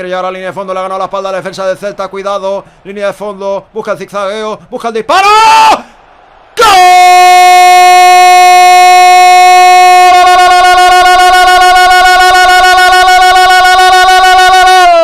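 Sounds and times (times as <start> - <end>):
man shouting goal cry: 5.1 - 5.9, 6.6 - 15.0.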